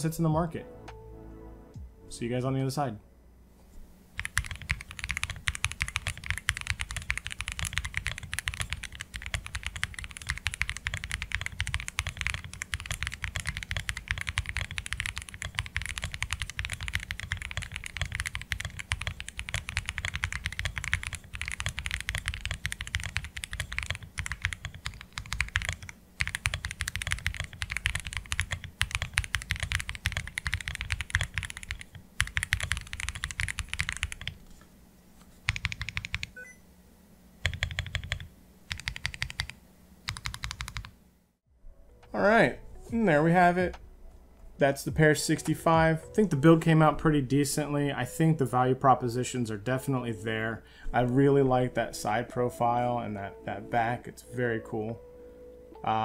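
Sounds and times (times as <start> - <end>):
fast typing on keyboard: 4.2 - 34.4, 35.4 - 36.4, 37.4 - 40.9.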